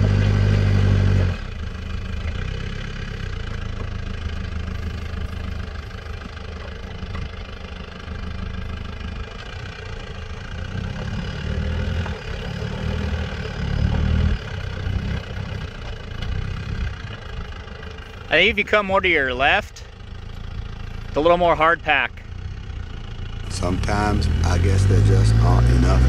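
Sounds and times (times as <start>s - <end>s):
vehicle engine pulling under load: 0.0s - 26.0s.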